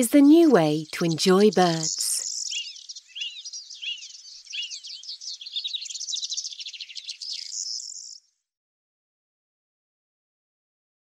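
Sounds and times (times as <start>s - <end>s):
small birds chirping: 0.0s - 8.4s.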